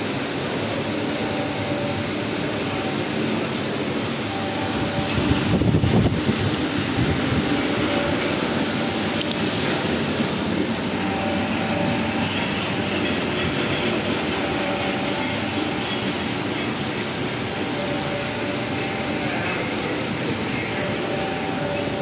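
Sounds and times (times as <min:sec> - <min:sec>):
punching machine running: 0:04.2 - 0:22.0.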